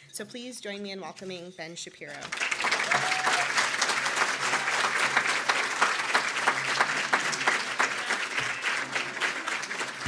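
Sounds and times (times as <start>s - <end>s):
audience applauding: 2.3s - 10.0s.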